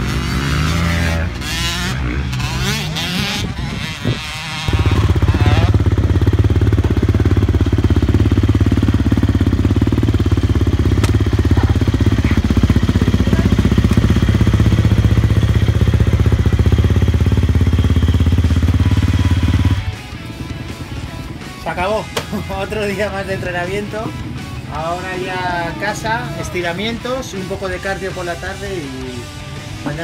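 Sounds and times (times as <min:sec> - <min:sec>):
engine idling: 0:04.8 - 0:21.5.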